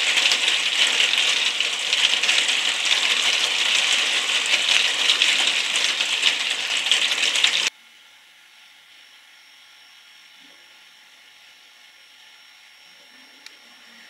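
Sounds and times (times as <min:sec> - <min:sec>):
heavy rain: 0:00.0 - 0:07.7.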